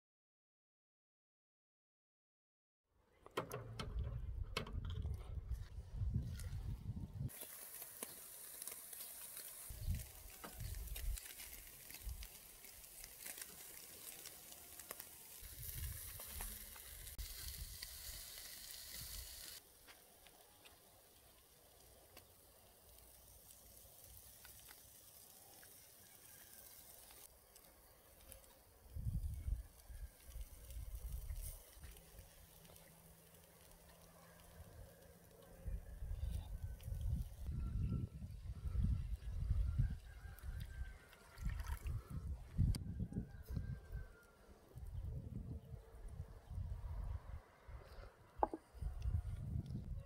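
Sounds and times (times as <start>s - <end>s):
fat crackling and popping: 7.3s - 37.5s
meat sizzling over charcoal: 7.3s - 37.5s.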